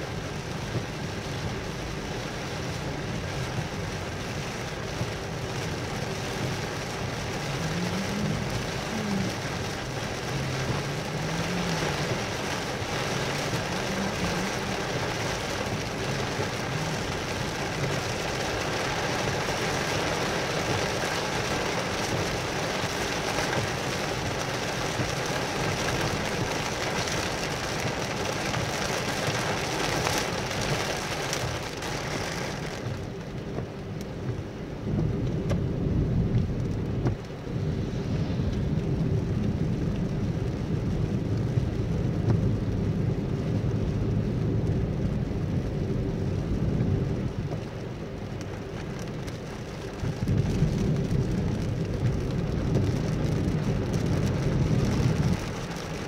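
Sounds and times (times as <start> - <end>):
car rumbling on wet road: 0.0 - 56.0
rain on car windscreen: 0.0 - 56.0.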